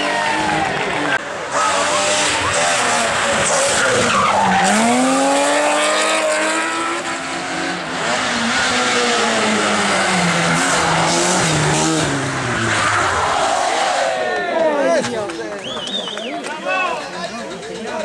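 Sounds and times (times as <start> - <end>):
hatchback rally car revving: 0.0 - 14.0
rally car accelerating away: 0.0 - 14.2.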